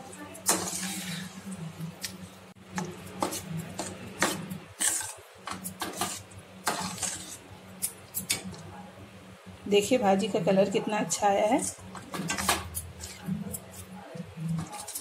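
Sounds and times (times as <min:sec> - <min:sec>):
metal spatula scraping pan: 0:00.4 - 0:01.4, 0:03.2 - 0:07.5.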